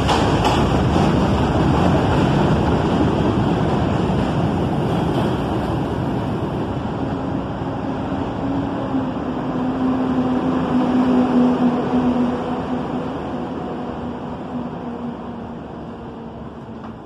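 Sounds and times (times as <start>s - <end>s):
train wheel clacks: 0.0s - 5.8s
subway train wheels rumbling on rail: 0.0s - 17.0s.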